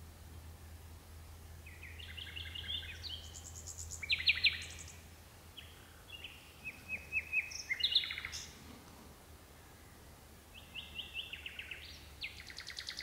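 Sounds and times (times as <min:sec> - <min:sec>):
nightingale singing: 0:01.6 - 0:08.6, 0:09.8 - 0:13.0.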